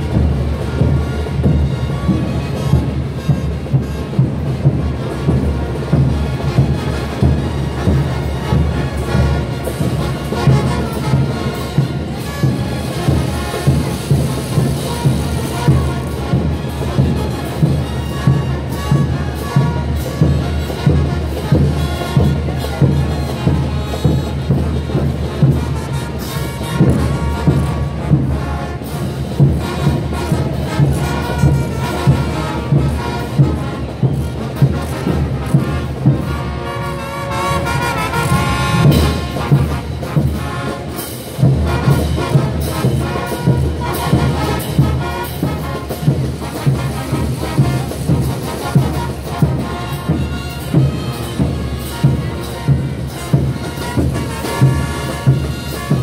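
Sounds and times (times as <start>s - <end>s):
brass band playing: 0.0s - 56.0s
steady drum beat: 0.0s - 56.0s.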